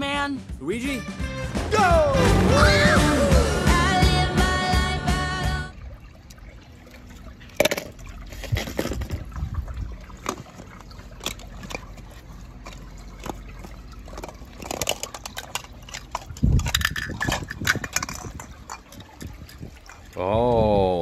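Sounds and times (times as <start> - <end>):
water sloshing and dripping: 5.5 - 21.0.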